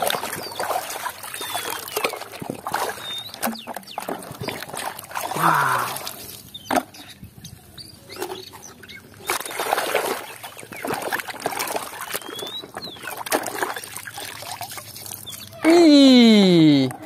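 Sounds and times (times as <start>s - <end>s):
hand sloshing through muddy water: 0.0s - 6.5s, 9.1s - 15.5s.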